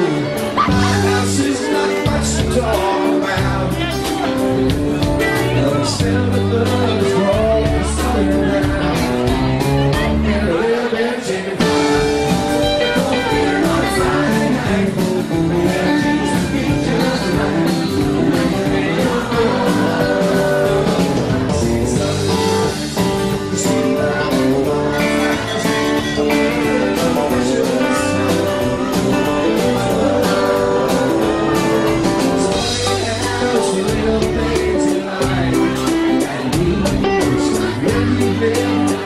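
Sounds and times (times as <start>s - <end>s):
acoustic guitar: 0.0s - 39.0s
country band playing: 0.0s - 39.0s
steady drum beat: 0.1s - 10.5s, 11.5s - 39.0s.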